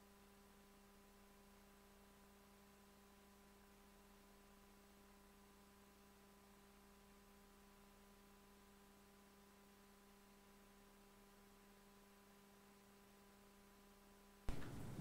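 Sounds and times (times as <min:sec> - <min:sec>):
faint electrical hum: 0:00.0 - 0:15.0
room sound: 0:08.1 - 0:15.0.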